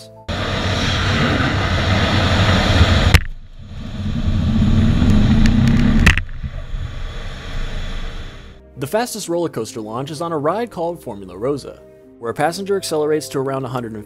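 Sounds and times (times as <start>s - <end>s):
jet engine rumble: 0.3s - 8.6s.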